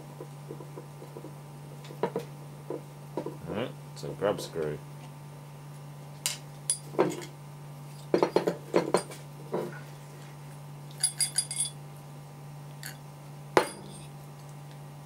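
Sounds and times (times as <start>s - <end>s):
steel parts knocking on workbench: 8.1s - 9.7s, 13.6s - 14.0s
ringing metal clinks: 11.0s - 11.8s.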